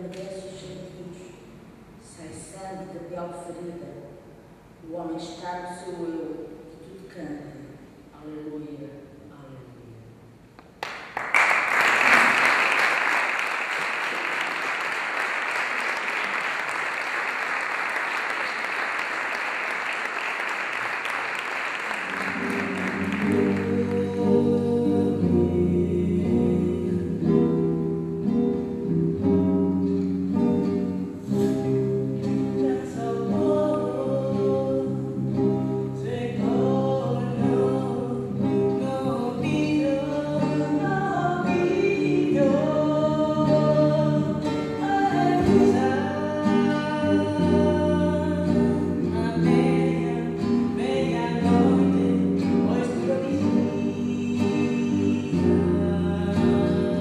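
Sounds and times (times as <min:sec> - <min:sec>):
acoustic guitar: 0:00.0 - 0:57.0
woman singing: 0:23.2 - 0:27.5, 0:32.3 - 0:35.2, 0:35.9 - 0:57.0.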